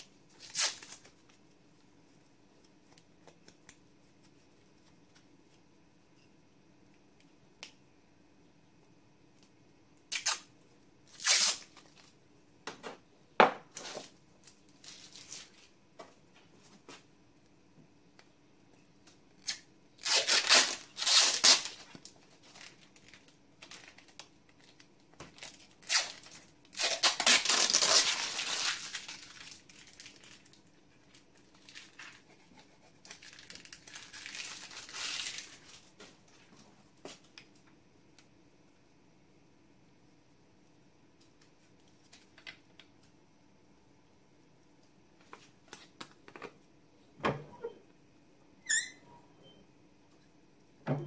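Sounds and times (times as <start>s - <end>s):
backing film tearing: 19.4s - 21.8s, 25.8s - 28.8s.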